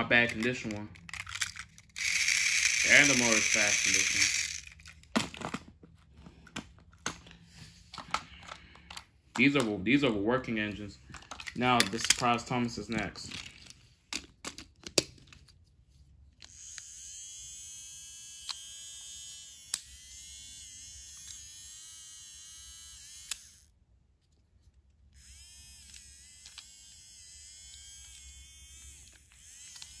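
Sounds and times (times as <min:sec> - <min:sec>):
toy train motor whining: 0:00.2 - 0:05.0, 0:16.4 - 0:23.7, 0:25.1 - 0:30.0.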